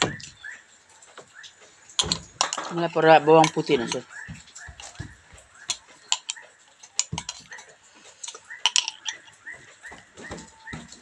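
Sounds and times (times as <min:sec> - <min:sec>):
metal spoon clinking on glass: 0:02.0 - 0:09.4.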